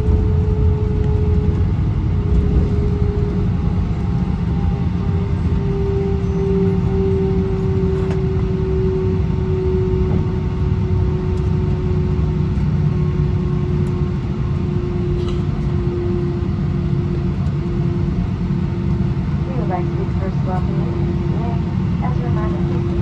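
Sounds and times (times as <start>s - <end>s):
aircraft cabin rumble: 0.0s - 23.0s.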